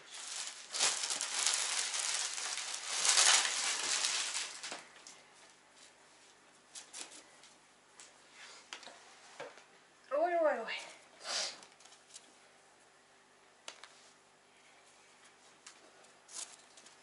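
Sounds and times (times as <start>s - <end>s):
plastic bag crinkling: 0.0s - 5.0s.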